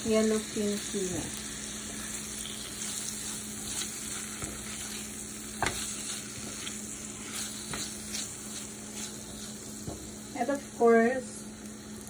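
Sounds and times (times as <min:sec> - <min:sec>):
food sizzling in a frying pan: 0:00.0 - 0:12.0
spatula scraping a pan: 0:02.4 - 0:10.0.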